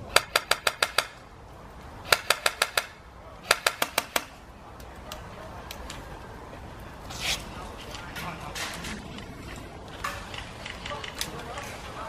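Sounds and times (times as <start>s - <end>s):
airsoft rifle shots: 2.0s - 4.4s.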